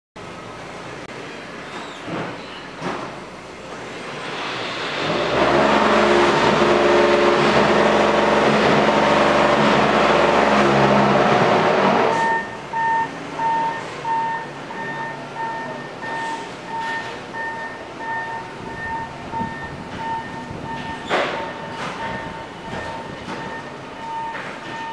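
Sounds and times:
diesel engine revving: 0:03.4 - 0:24.9
reversing alarm beeping: 0:12.0 - 0:24.9.

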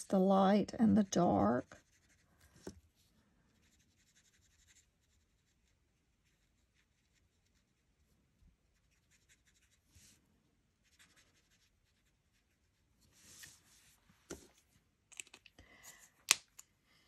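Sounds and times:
marker nib scratching on cardstock: 0:01.2 - 0:02.7, 0:03.6 - 0:07.8.

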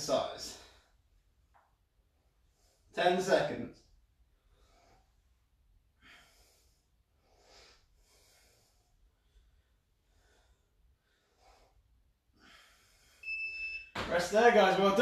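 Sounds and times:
man breathing heavily: 0:04.3 - 0:13.2.

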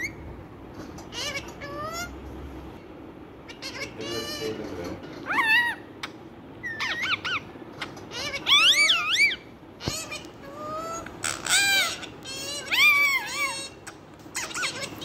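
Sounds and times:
parakeet warbling calls: 0:01.0 - 0:02.2, 0:03.4 - 0:04.6, 0:05.2 - 0:15.0.

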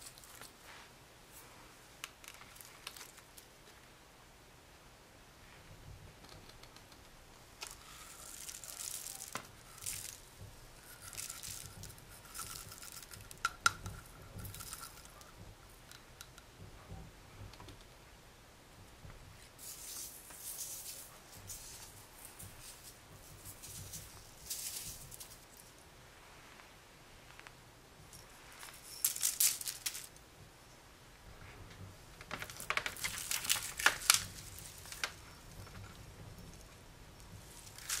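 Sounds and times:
slime squishing and crackling: 0:32.2 - 0:35.2.

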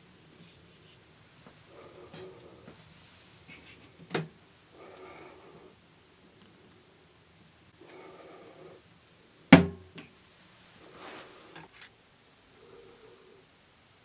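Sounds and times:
soft rustling: 0:00.0 - 0:04.1, 0:10.3 - 0:12.0
sharp knock on cabinet: 0:09.6 - 0:09.8.

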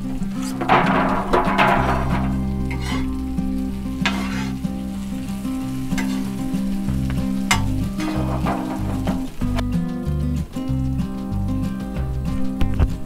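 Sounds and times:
peppers sizzling on griddle: 0:00.0 - 0:12.6
metal spatula scraping steel: 0:00.2 - 0:09.6.

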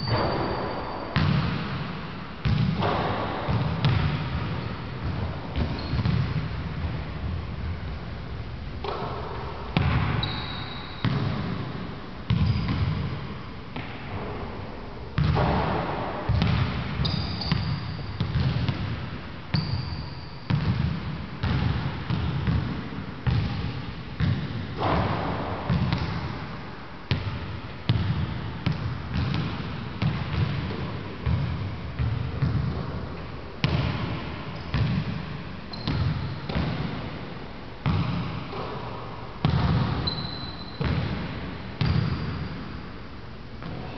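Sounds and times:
basketball bouncing on hardwood floor: 0:01.2 - 0:01.8, 0:02.4 - 0:07.0, 0:09.8 - 0:11.6, 0:12.3 - 0:13.2, 0:15.2 - 0:23.6, 0:24.2 - 0:26.2, 0:27.1 - 0:32.9, 0:33.6 - 0:37.0, 0:37.8 - 0:38.7, 0:39.4 - 0:42.4
short high squeaks: 0:40.1 - 0:40.8.

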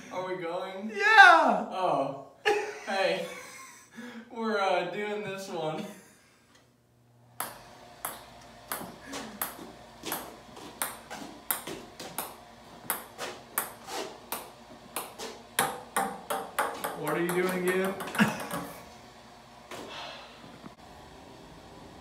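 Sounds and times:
ball bouncing on golf club: 0:07.4 - 0:18.8.

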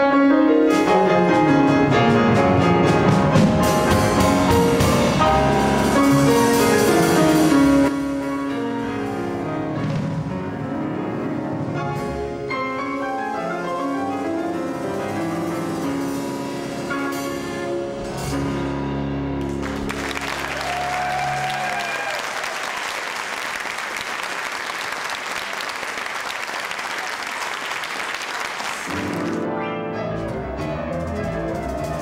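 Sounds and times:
grand piano playing: 0:00.0 - 0:32.0
audience applause: 0:19.4 - 0:29.4.

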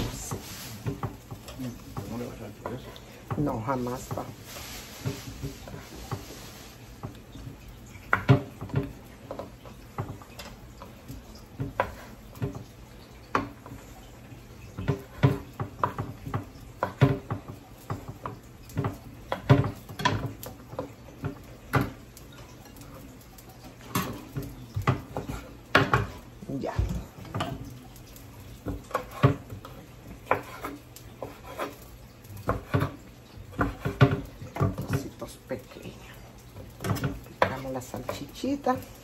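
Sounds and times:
knife chopping on cutting board: 0:30.2 - 0:31.8, 0:32.4 - 0:35.0.

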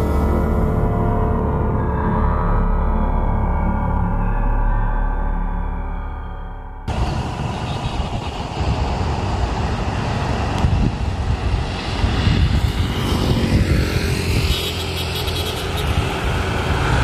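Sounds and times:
heavy low rumble: 0:06.8 - 0:14.3.

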